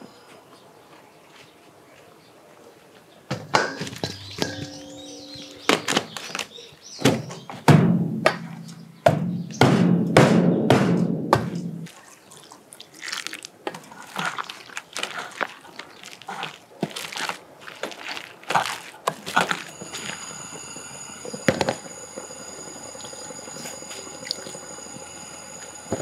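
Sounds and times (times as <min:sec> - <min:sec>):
steel bowl ringing: 0:03.6 - 0:06.1, 0:19.6 - 0:26.0.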